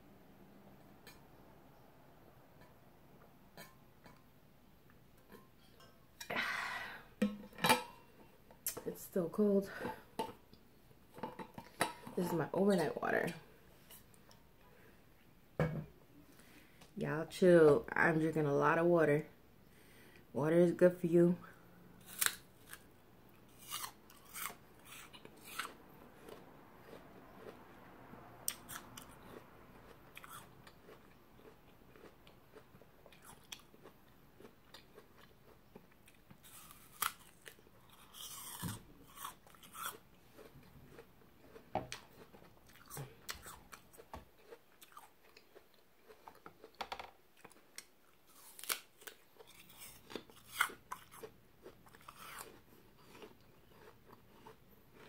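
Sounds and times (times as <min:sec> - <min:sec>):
chewing crisp apple crunches: 0:22.0 - 0:27.8, 0:28.4 - 0:46.8, 0:47.4 - 0:55.0.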